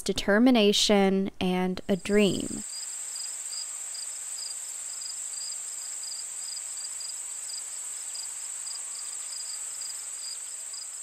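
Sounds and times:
crickets chirping: 0:02.6 - 0:11.0.

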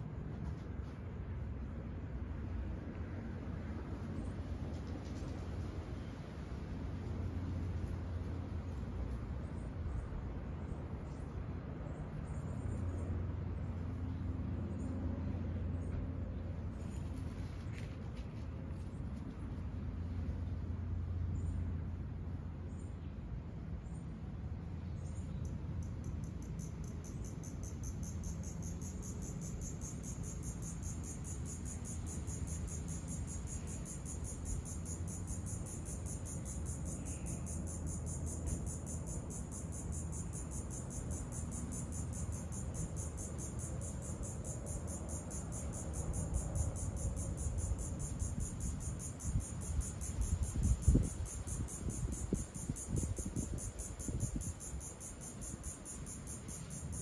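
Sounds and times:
insects trilling: 0:25.0 - 0:57.0.

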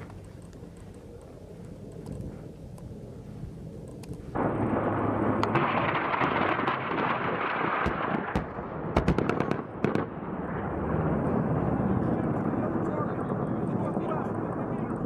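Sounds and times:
helicopter flying past: 0:00.0 - 0:07.6, 0:09.3 - 0:15.0
sharp cracks: 0:03.9 - 0:10.2.

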